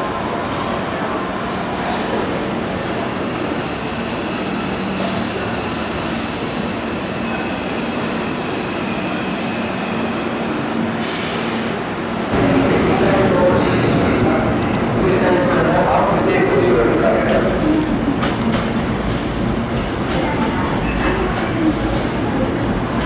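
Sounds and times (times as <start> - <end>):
air hiss: 11.0 - 11.8
station noise: 12.3 - 18.7.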